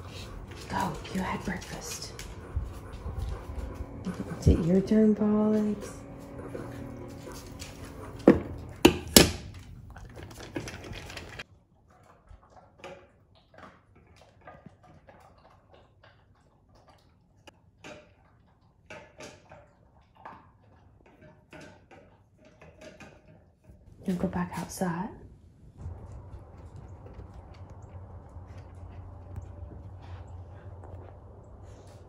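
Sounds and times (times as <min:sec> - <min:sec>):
dog crunching kibble: 0:00.0 - 0:16.6.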